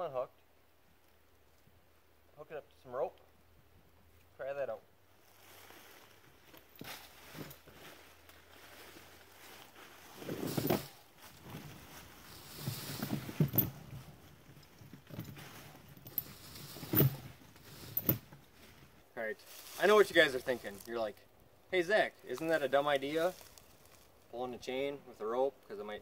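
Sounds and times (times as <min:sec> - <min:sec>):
dry leaves rustling: 0:05.1 - 0:13.4, 0:17.6 - 0:21.1, 0:22.3 - 0:24.3
steel chain rattling: 0:12.3 - 0:14.0, 0:15.0 - 0:18.2.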